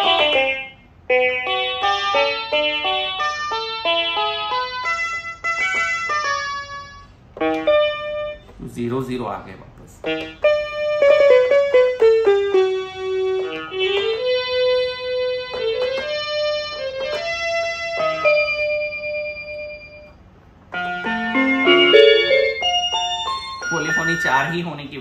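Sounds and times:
toy keyboard melody: 0.0 - 8.5, 10.1 - 20.1, 20.8 - 24.7.

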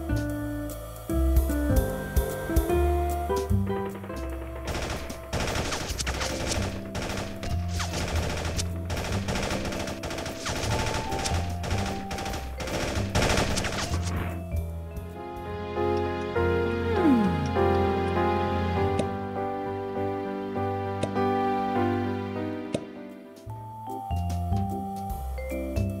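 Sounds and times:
background music with bass: 0.0 - 5.3, 11.3 - 26.0
video game gunfire: 4.0 - 14.3.

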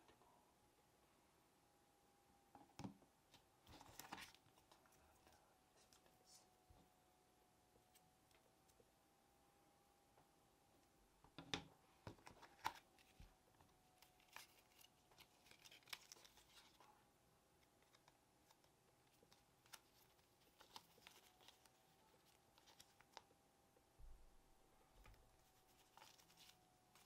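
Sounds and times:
paper and cardboard rustling: 3.6 - 6.4, 12.1 - 13.4, 14.0 - 16.9, 17.8 - 23.2, 25.0 - 27.0.

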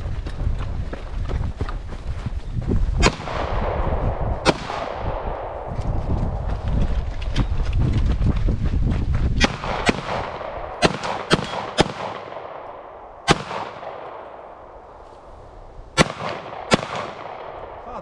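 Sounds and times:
rumbling clattering movement noise: 0.0 - 3.0, 5.7 - 9.4
gunshot echo: 3.0 - 5.7, 9.4 - 14.6, 16.0 - 17.9
handgun shots: 10.8 - 12.3.

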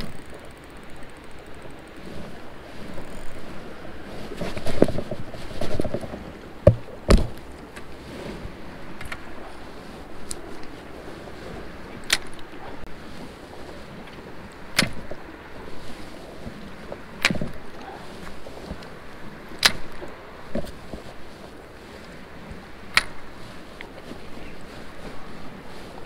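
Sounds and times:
fishing reel clicks and knocks: 0.0 - 2.0
water: 0.0 - 26.0
wind: 0.0 - 26.0.

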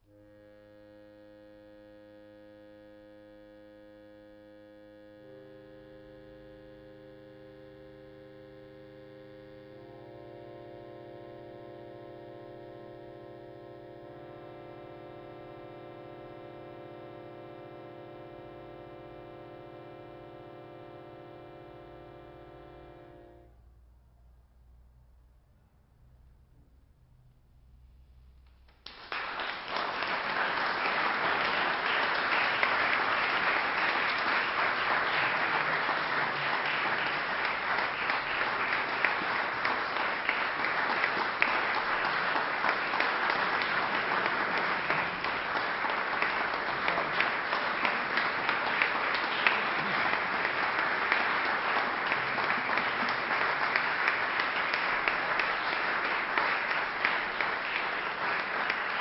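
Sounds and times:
audience applauding: 28.7 - 59.0.

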